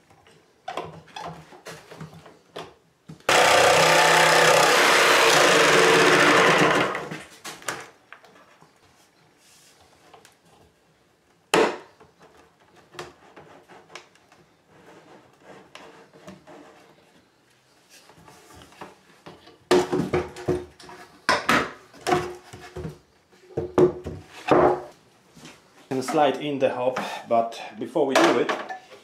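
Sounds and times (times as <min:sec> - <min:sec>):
wooden knocks and scrapes: 0:12.1 - 0:17.3, 0:17.9 - 0:26.3.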